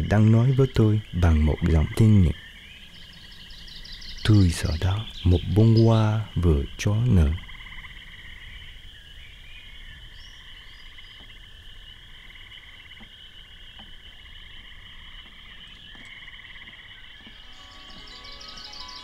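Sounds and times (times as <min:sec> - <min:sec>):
frogs trilling: 0:00.0 - 0:19.0
soft chime-like music: 0:17.4 - 0:19.0.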